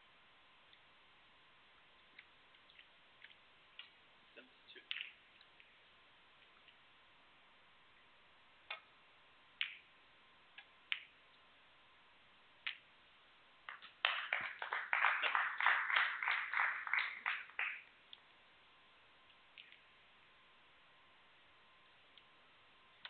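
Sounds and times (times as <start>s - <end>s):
snooker balls clicking: 10.6s - 11.2s, 12.6s - 12.9s
crowd applause: 14.0s - 17.8s.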